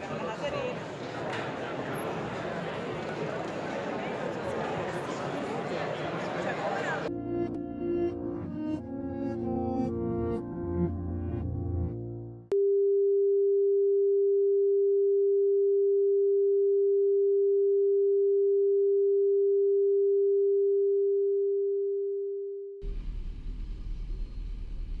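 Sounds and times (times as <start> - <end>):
low hum: 22.8 - 25.0.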